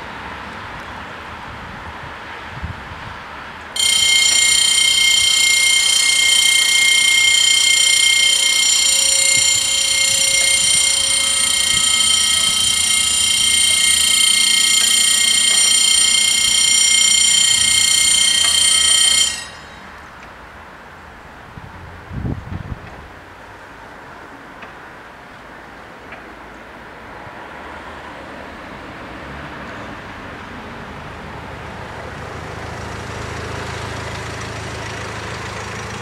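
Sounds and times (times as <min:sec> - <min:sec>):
level crossing warning bells ringing: 0:03.8 - 0:20.2, 0:32.6 - 0:36.0.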